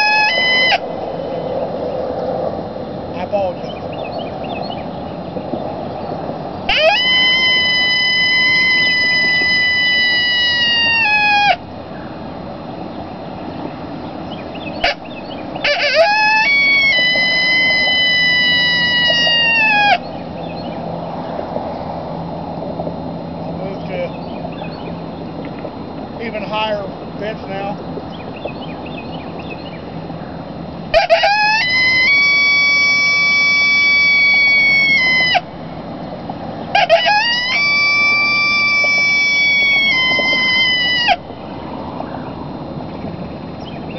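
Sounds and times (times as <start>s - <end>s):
coyote howler call: 0.0s - 1.7s, 6.6s - 12.2s, 14.3s - 21.4s, 28.8s - 35.8s, 36.6s - 42.5s
road noise: 0.0s - 43.9s.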